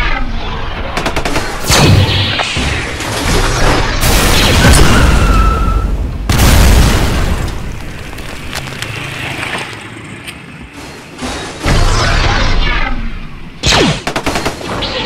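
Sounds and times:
explosion blasts: 1.5s - 9.2s.

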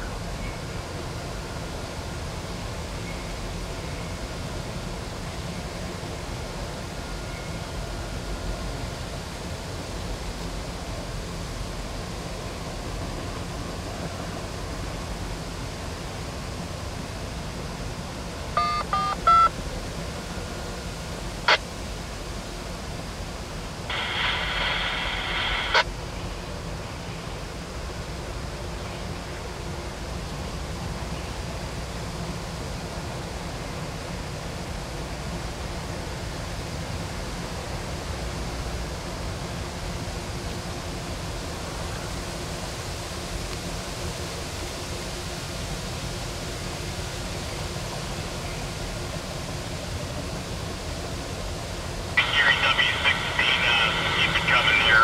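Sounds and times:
distant freight train rumble: 0.0s - 55.0s
phone keypad beeps: 18.6s - 19.5s.

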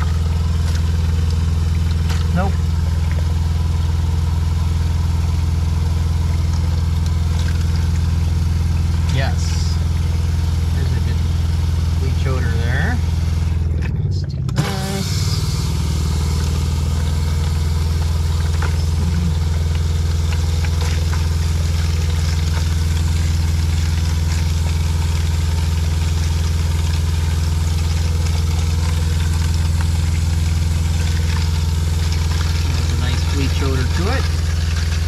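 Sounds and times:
water pump humming: 0.0s - 35.0s.

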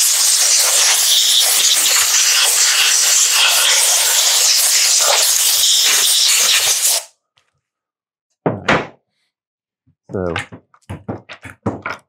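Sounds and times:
compressed air blow gun hissing: 0.0s - 7.1s.

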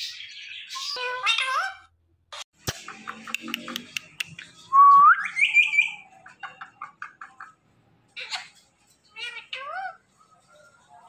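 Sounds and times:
parakeet whistling and chirping: 4.4s - 6.2s.

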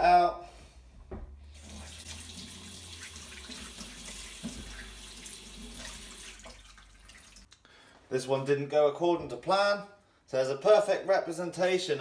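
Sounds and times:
water splashing: 1.7s - 7.6s
tap running into steel sink: 4.4s - 4.9s.

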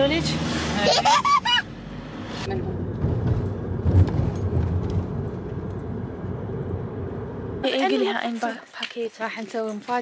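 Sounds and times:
car engine and tyres rumbling: 0.0s - 8.3s.

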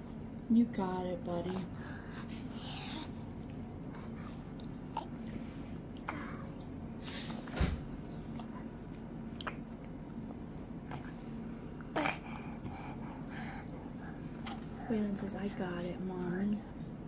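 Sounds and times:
faint steady hum: 0.0s - 17.0s
baby mouthing food: 1.4s - 6.7s, 8.2s - 10.0s
wet smacks and clicks: 8.4s - 10.7s.

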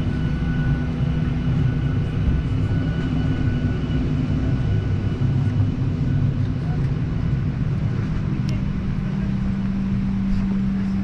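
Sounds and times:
jet engines running: 0.0s - 11.0s.

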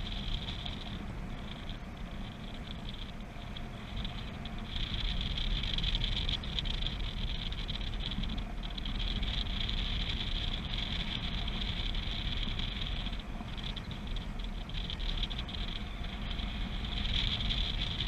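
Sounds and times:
wind rushing over microphone: 0.0s - 18.0s.

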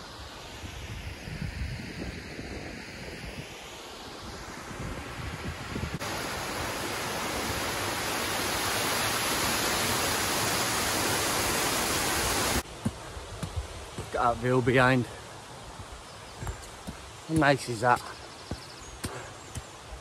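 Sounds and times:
wind buffeting microphone: 4.6s - 6.3s
water rushing down channel: 6.0s - 15.0s.

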